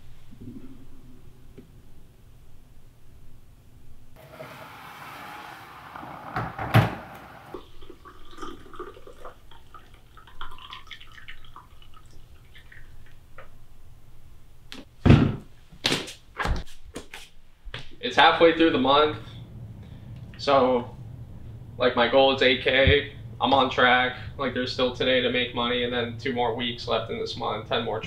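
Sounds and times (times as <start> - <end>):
coffee pouring into mug: 7.6 - 13.2.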